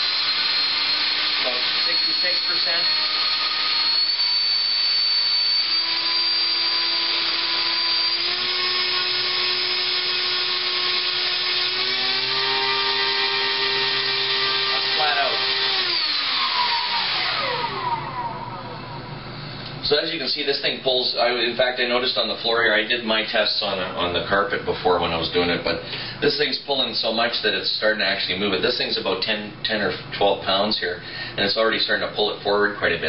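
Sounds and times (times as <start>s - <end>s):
electric motor and propeller whine: 0.0s - 19.5s.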